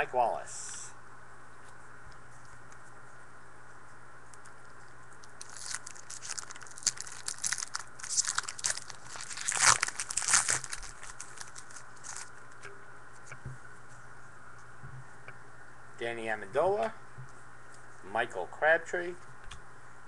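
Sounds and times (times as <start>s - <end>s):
foil wrapper tearing and crinkling: 5.2s - 12.3s.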